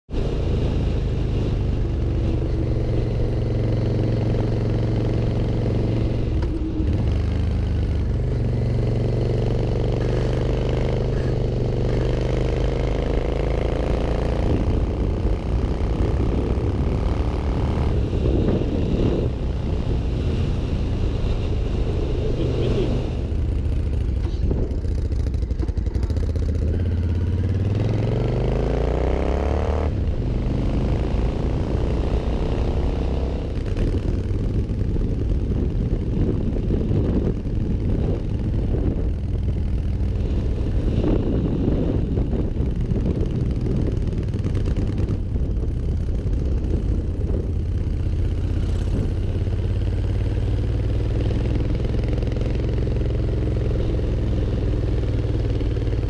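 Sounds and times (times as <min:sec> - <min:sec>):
motorcycle engine accelerating: 0:00.1 - 0:56.0.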